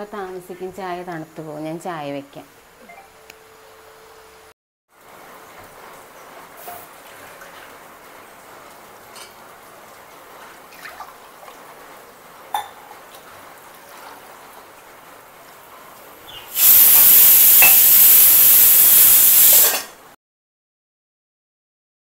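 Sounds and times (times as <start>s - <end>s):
pressure cooker steam hiss: 16.3s - 20.0s.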